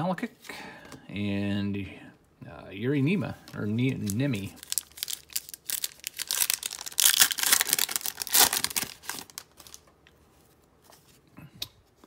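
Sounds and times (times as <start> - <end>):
foil wrapper crinkling and tearing: 3.5 - 9.8.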